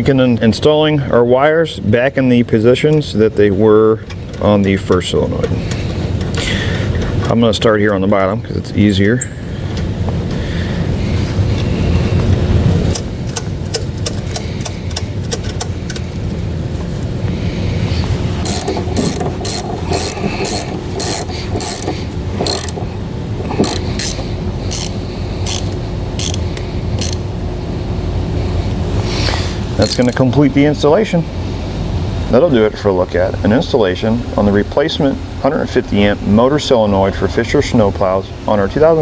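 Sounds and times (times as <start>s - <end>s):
ratchet wrench clicking: 12.9s - 16.0s, 18.4s - 22.9s, 23.5s - 27.3s, 29.8s - 30.2s.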